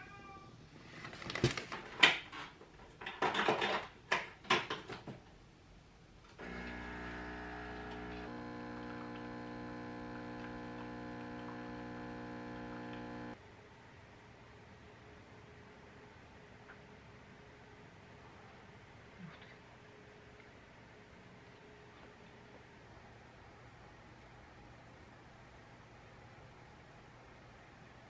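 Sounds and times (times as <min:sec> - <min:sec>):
espresso machine pump humming: 0:06.4 - 0:13.4.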